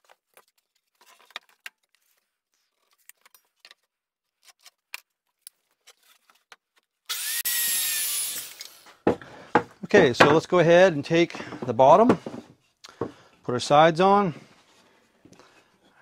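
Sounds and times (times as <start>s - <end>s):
circular saw cutting board: 7.1s - 9.1s
boards tapping and clicking: 9.0s - 10.5s, 11.3s - 13.2s.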